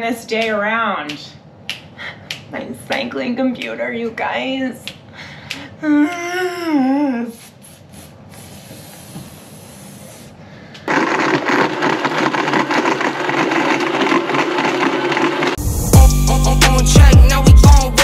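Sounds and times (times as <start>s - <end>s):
blender running: 10.8s - 15.6s
ice rattling in blender jar: 10.9s - 15.6s.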